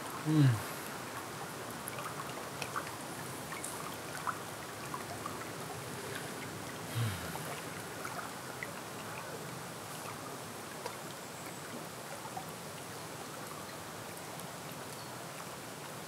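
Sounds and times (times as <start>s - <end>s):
water rushing with drips: 0.0s - 16.0s
low hum from a voice: 0.2s - 0.8s.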